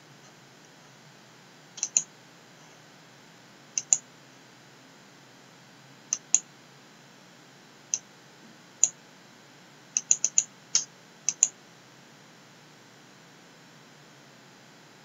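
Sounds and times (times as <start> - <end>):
computer mouse button clicking: 1.8 - 2.1, 3.8 - 4.0, 6.1 - 6.4, 10.0 - 11.5.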